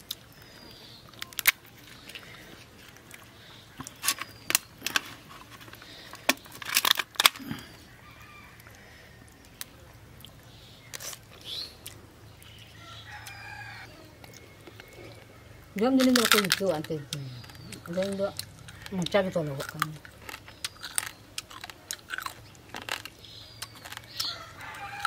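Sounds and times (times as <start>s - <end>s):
crab shell cracking: 1.1s - 7.8s, 16.0s - 25.0s.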